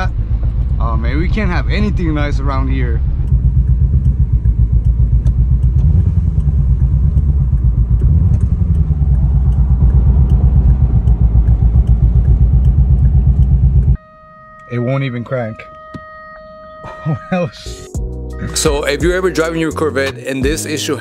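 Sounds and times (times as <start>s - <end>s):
car engine running rough and sputtering: 0.0s - 14.0s.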